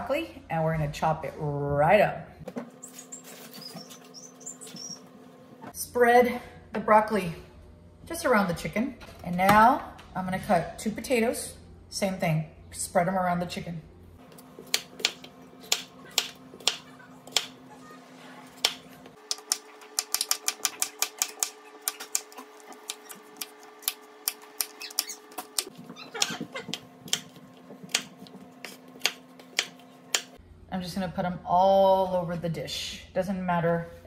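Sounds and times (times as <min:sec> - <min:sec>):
knife chopping on wooden board: 0:14.6 - 0:17.6, 0:18.6 - 0:30.4.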